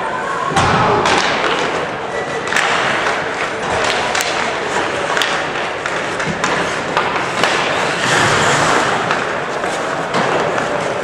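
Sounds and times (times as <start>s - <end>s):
hockey sticks and puck clacking: 0.5s - 11.0s
skate blades scraping ice: 2.9s - 11.0s.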